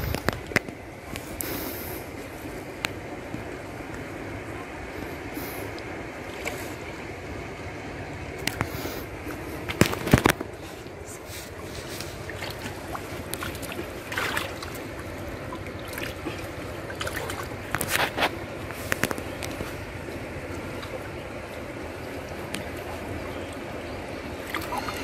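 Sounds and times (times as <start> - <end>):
water splashing and dripping: 11.8 - 25.0.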